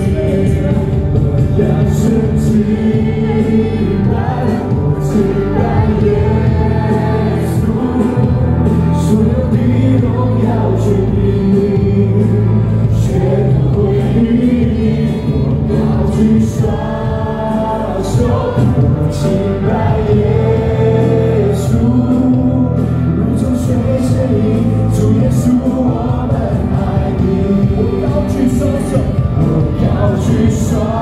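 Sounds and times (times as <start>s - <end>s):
choir singing with band: 0.0s - 31.0s
congregation singing along: 0.0s - 31.0s.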